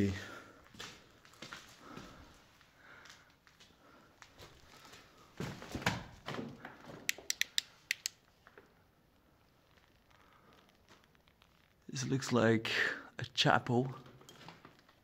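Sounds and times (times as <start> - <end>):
footsteps crunching on concrete: 0.7 - 2.4
sharp clicks: 7.1 - 8.3.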